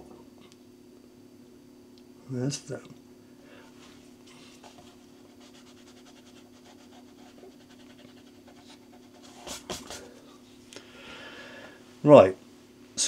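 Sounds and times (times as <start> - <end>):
faint steady hum: 0.0 - 13.0
eraser rubbing on paper: 4.5 - 10.2.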